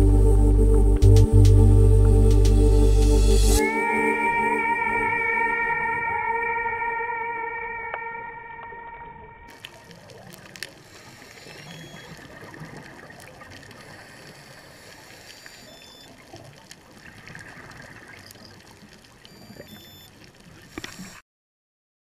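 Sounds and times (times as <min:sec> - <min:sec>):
scuba regulator bubbling: 0:07.6 - 0:21.2
underwater watery hiss: 0:09.7 - 0:16.2, 0:20.6 - 0:21.2.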